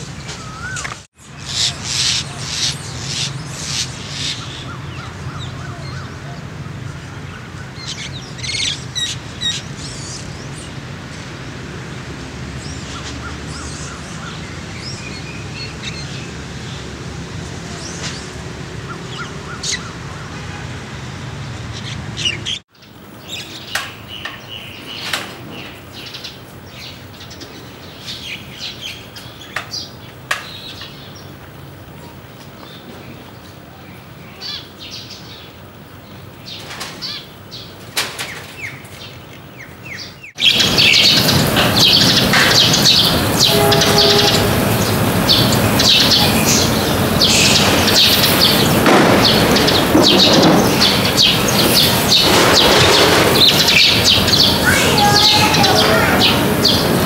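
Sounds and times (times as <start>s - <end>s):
small birds chirping: 0.0s - 11.0s, 21.6s - 57.0s.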